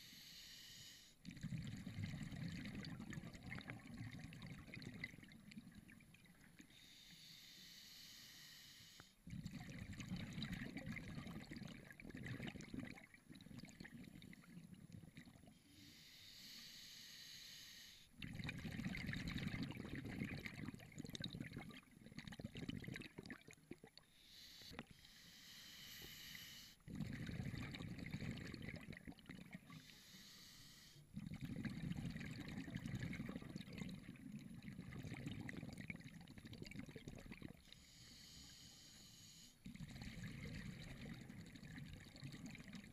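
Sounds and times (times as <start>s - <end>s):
regulator hissing inhalations: 0.0s - 1.2s, 6.8s - 9.2s, 15.7s - 18.1s, 24.2s - 26.8s, 29.8s - 31.0s, 37.8s - 39.6s
exhaled bubbles underwater: 1.2s - 6.7s, 9.2s - 15.6s, 18.2s - 24.0s, 26.9s - 29.9s, 31.1s - 37.8s, 39.6s - 42.9s.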